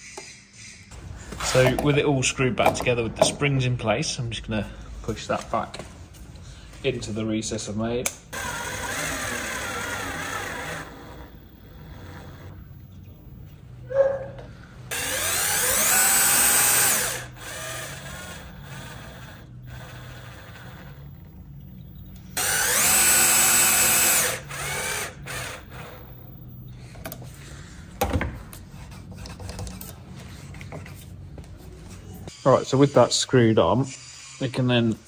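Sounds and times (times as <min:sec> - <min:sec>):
cordless drill whining: 0:08.3 - 0:13.3, 0:14.9 - 0:26.7.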